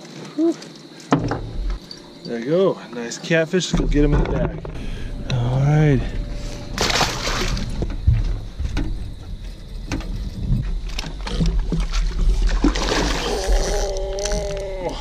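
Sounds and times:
low rumble: 0:03.8 - 0:11.3
water splash: 0:06.7 - 0:08.0, 0:11.6 - 0:13.7.

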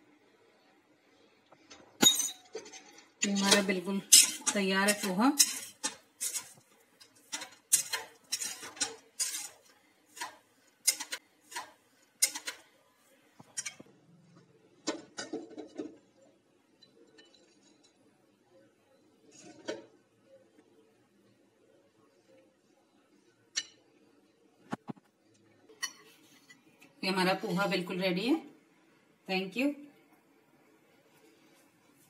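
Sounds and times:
metal spoon scraping metal pan: 0:02.6 - 0:12.6.

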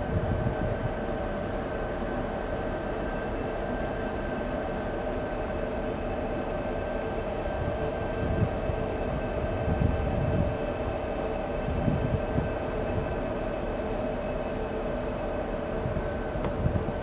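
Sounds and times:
wind buffeting microphone: 0:00.0 - 0:01.1, 0:07.5 - 0:13.2, 0:15.8 - 0:17.0
ship engine drone: 0:00.0 - 0:17.0.

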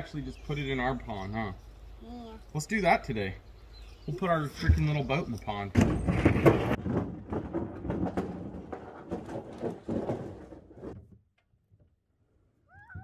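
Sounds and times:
metal boat hull scraping on gravel: 0:04.5 - 0:11.0.

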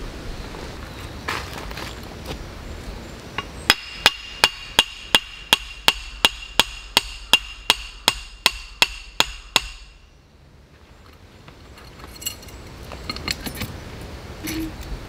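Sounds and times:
hammer striking metal pole: 0:03.7 - 0:10.0.

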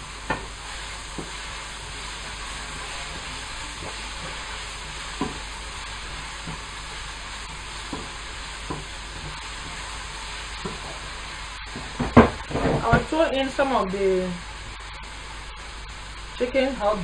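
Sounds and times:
vegetables sizzling in a pan: 0:00.0 - 0:17.0.

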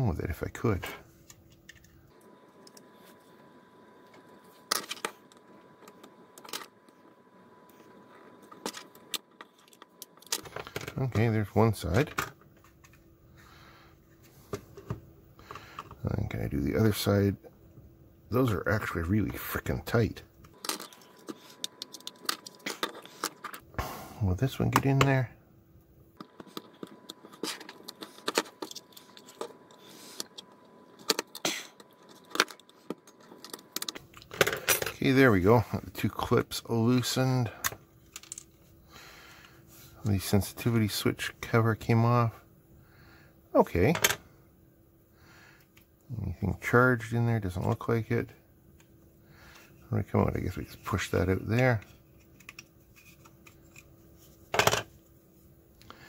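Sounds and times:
plastic clicks and scrapes: 0:26.2 - 0:34.3.

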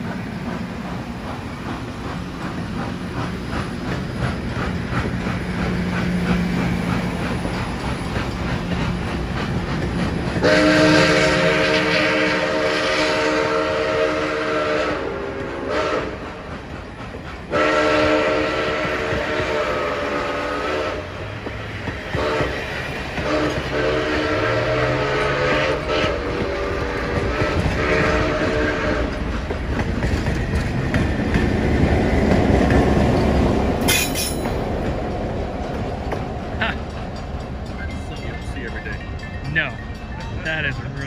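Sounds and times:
deep locomotive rumble: 0:00.0 - 0:41.0
train cars clacking on rails: 0:00.0 - 0:41.0
steam locomotive whistle blasts: 0:10.4 - 0:16.4, 0:17.5 - 0:21.2, 0:22.1 - 0:29.2.

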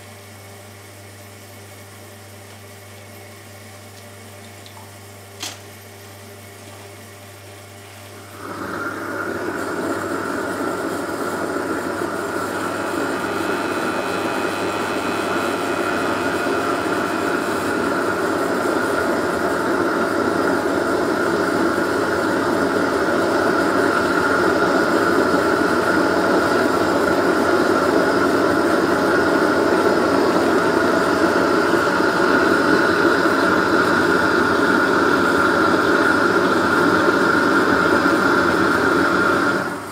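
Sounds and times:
blowtorch roaring: 0:08.2 - 0:39.9.

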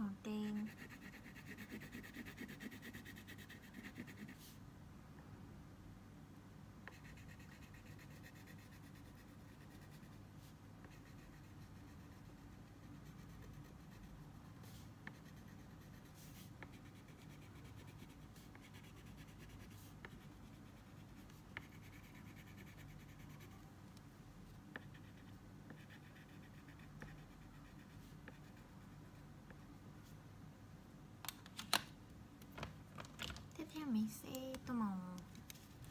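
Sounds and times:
crayon scratching on paper: 0:00.4 - 0:04.6, 0:06.9 - 0:10.2, 0:10.8 - 0:23.6, 0:24.7 - 0:29.6.

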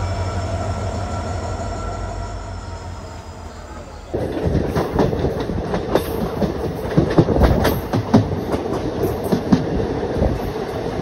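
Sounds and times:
train rumble and rush: 0:00.0 - 0:11.0
wheels clattering over rail joints: 0:04.2 - 0:11.0.

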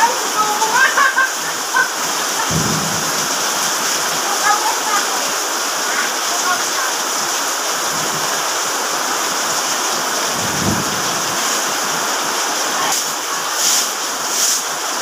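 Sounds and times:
rain on pavement: 0:00.0 - 0:15.0
broom sweeping wet concrete: 0:12.9 - 0:15.0.

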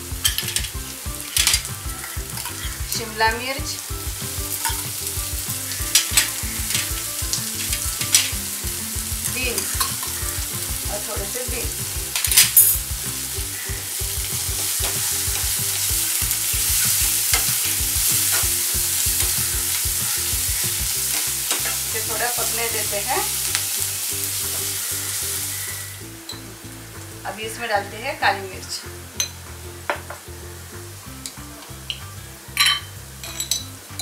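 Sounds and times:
spatula stirring vegetables: 0:00.0 - 0:28.4
vegetables sizzling in hot oil: 0:00.0 - 0:34.0
steel spoon clinking on pan: 0:04.6 - 0:04.9, 0:32.6 - 0:33.7.

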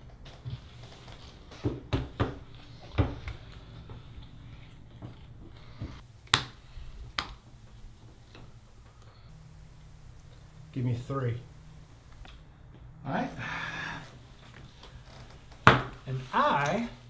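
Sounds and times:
playing cards snapping and tapping: 0:06.3 - 0:07.4.

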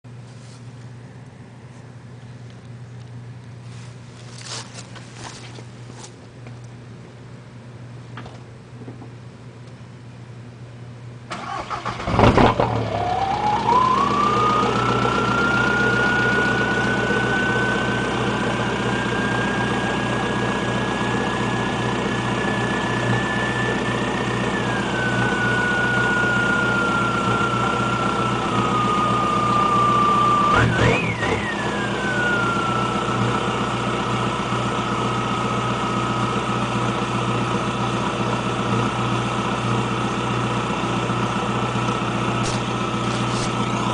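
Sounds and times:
diesel engine cranking and idling: 0:11.2 - 0:43.9
engine rev blip: 0:11.3 - 0:33.7
high whine: 0:12.1 - 0:43.9.

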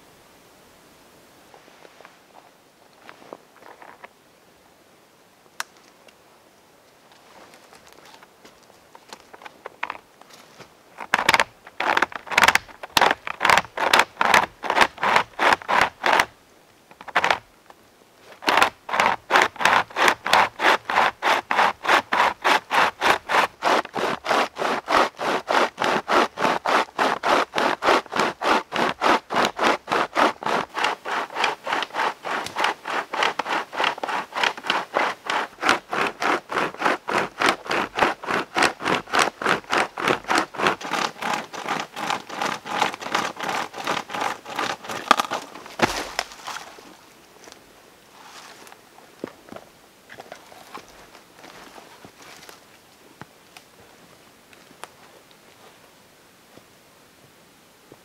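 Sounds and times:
hand chain saw rasping through wood: 0:11.2 - 0:16.3, 0:18.4 - 0:46.6.

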